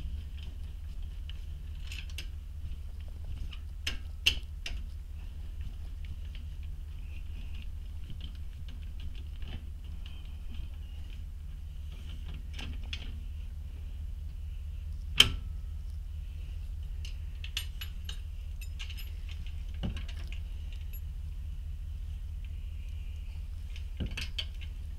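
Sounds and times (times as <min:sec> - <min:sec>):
steady low hum: 0:00.0 - 0:24.9
small metal clicks: 0:17.0 - 0:21.1
metal chains clinking: 0:17.5 - 0:21.1.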